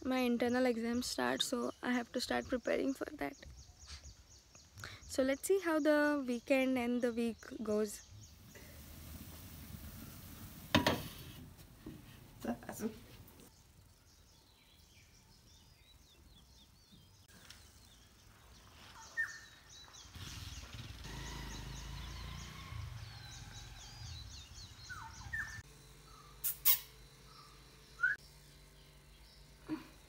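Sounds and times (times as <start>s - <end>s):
small birds chirping: 0.0s - 10.7s, 11.9s - 30.0s.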